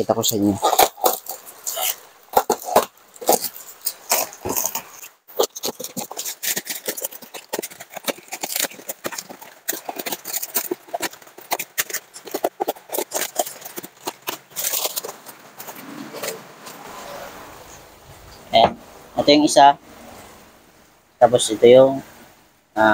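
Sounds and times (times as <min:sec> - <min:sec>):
cardboard and plastic tearing: 0:00.6 - 0:17.3.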